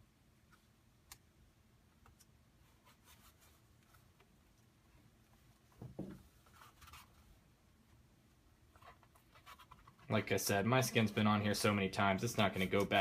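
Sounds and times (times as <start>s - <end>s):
soft thump: 5.8s - 6.2s.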